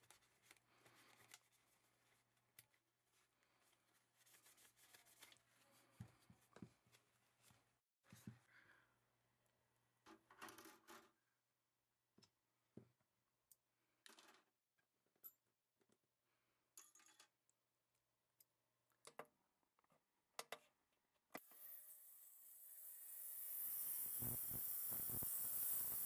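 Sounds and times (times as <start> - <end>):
faint clicks and handling: 0.0 - 3.9
ultrasonic cleaner buzzing: 21.4 - 26.0.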